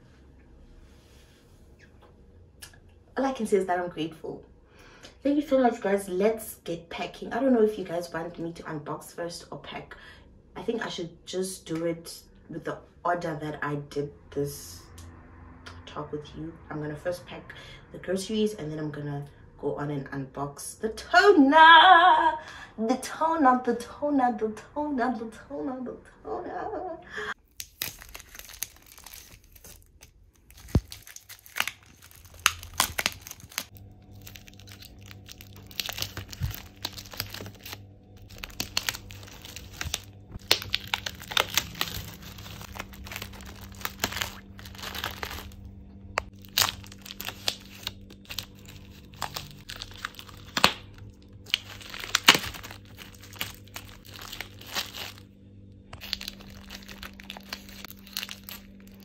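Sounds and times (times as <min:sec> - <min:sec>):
plastic wrap tearing and crinkling: 0:27.4 - 0:55.2, 0:55.9 - 0:59.0
blade slitting plastic wrap: 0:27.5 - 0:45.6, 0:46.2 - 0:55.2, 0:56.0 - 0:59.0.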